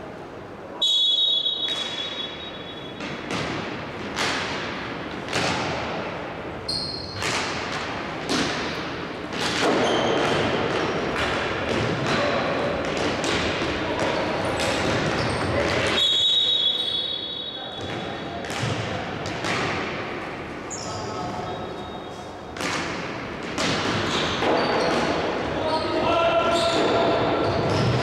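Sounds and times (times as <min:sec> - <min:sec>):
referee's whistle blast: 0:00.8 - 0:03.0, 0:16.0 - 0:17.7
sticks hitting ball: 0:03.0 - 0:06.0, 0:07.2 - 0:16.0, 0:17.8 - 0:20.1, 0:22.6 - 0:25.2.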